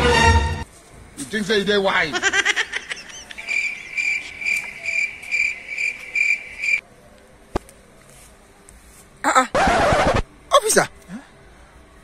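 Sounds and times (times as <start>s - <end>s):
cricket chirping: 2.9s - 6.8s.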